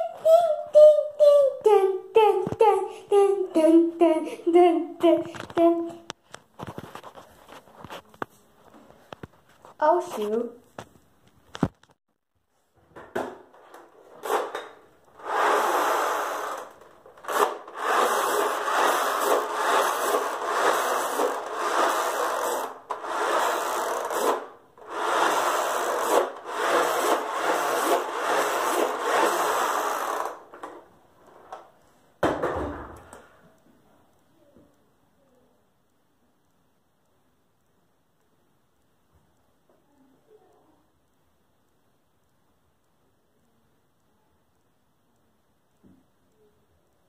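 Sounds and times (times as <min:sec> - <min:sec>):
thump: 0:32.2 - 0:33.1.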